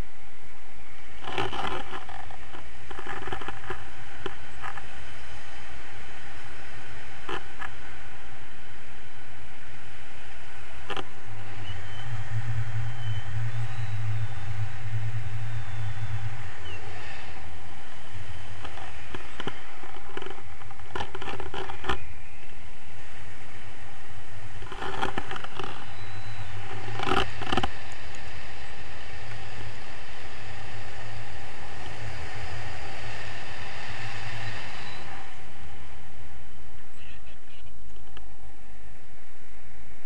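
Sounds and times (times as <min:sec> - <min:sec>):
wind rushing over microphone: 0:00.0 - 0:40.0.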